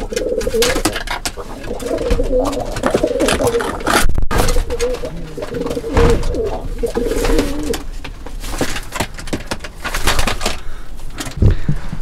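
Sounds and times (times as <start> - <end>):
pigeons cooing: 0.0 - 7.9.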